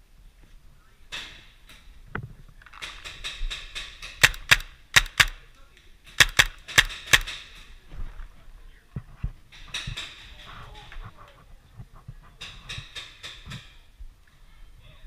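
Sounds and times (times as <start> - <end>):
paintball markers firing: 4.1 - 5.4, 6.2 - 7.4.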